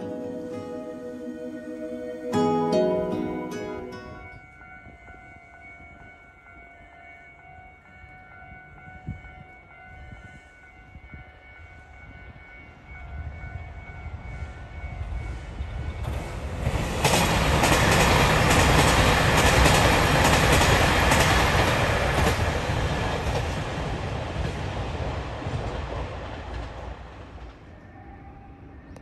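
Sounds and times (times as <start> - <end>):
train wheels clicking over rail joints: 16.0 - 27.6.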